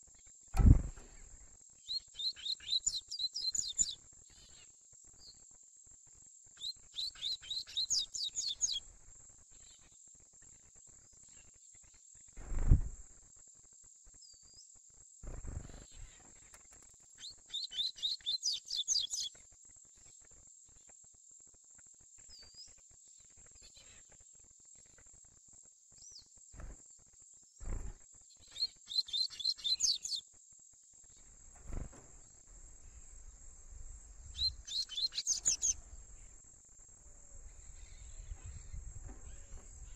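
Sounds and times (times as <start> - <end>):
low thumps: 0.6 - 1.2.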